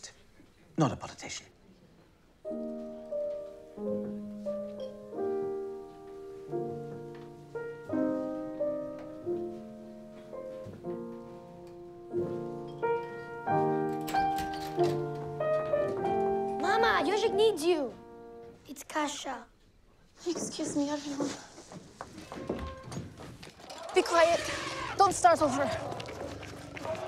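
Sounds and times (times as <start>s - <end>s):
slow piano chords: 2.4s - 18.6s.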